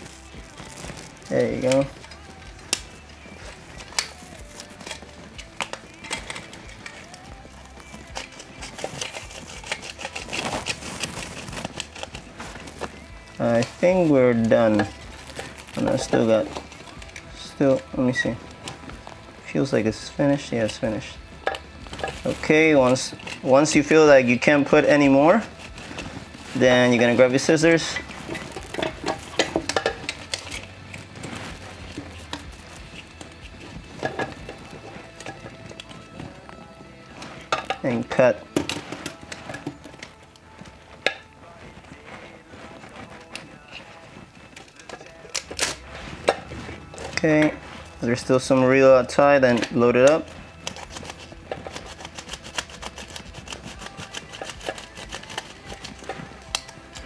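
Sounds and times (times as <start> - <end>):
hands rustling in fabric bag: 0.0 - 6.0, 6.8 - 21.0.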